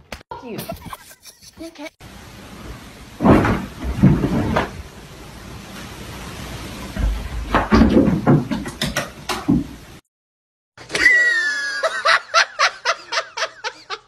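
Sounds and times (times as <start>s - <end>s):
person laughing hard: 0.6s - 1.9s, 10.9s - 14.0s
thump: 3.2s - 4.7s.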